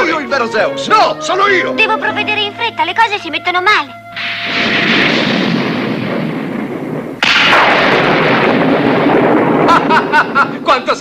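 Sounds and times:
cartoon thunder: 4.2 - 11.0.

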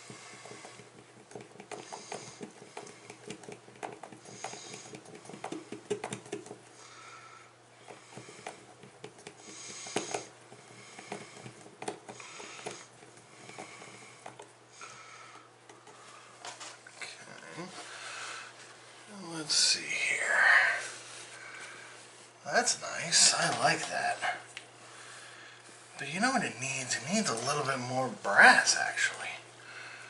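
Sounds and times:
soft breathing: 4.2 - 5.1, 6.7 - 22.4, 24.1 - 26.0, 29.5 - 30.0.

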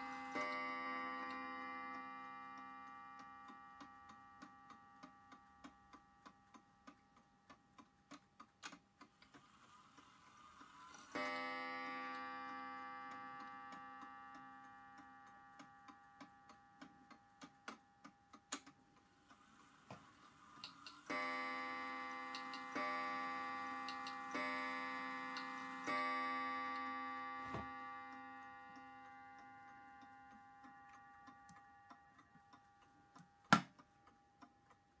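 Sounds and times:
clock striking gong: 0.0 - 4.3, 11.2 - 15.0, 21.0 - 30.0
clock mechanism whirring: 0.0 - 35.0
clock ticking: 0.0 - 35.0.

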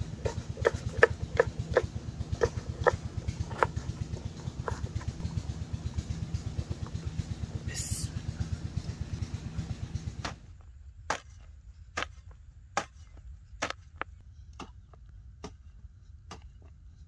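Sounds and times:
hoe chopping into dry soil: 0.0 - 5.3, 10.0 - 16.8.

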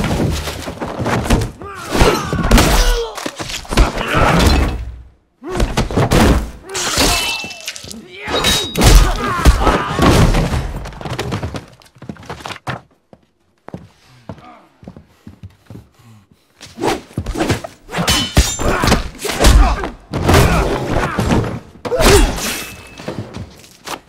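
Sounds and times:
objects crashing and breaking: 0.0 - 5.0, 5.6 - 12.8.

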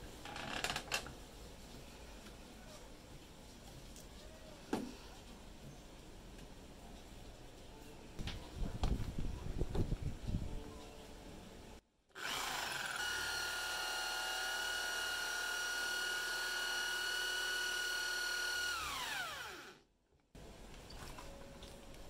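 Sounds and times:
electric drill boring through wood: 12.2 - 19.8.

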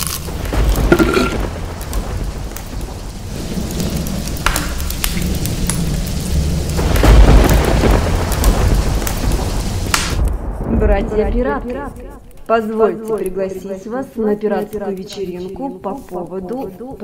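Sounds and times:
steady rain: 0.0 - 16.1
thunder rumble: 0.2 - 12.4.

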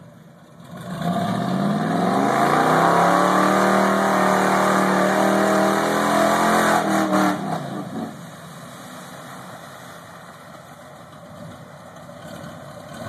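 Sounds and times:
truck engine idling: 9.4 - 13.0.

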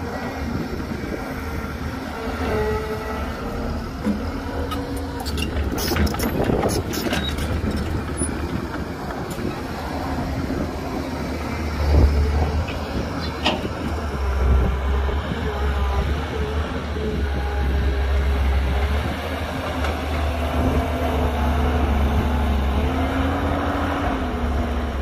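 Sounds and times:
diesel engines rumbling: 0.0 - 25.0.

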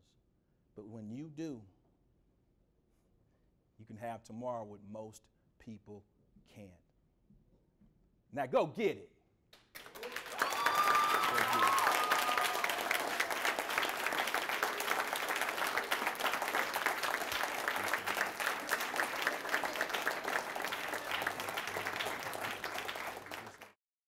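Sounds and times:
audience applauding: 9.8 - 23.8.

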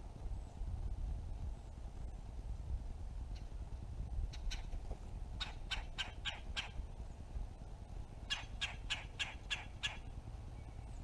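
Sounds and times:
woodpecker calling: 4.3 - 4.8, 5.4 - 6.9, 8.2 - 11.0.

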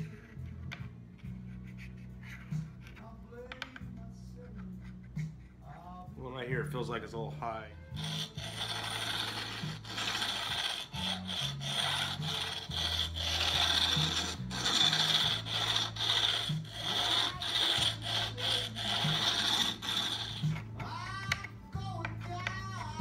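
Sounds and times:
metal bar filing guitar frets: 8.0 - 21.0.

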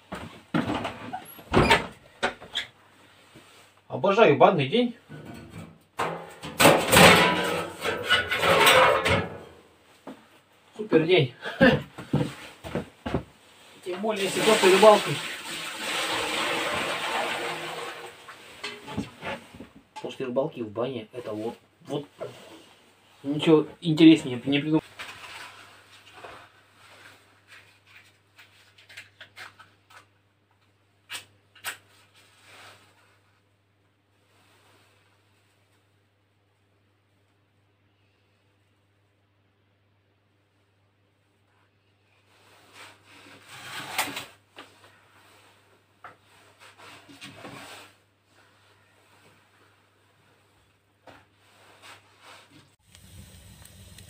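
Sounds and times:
metal stove door knocks and scrapes: 5.1 - 9.5.

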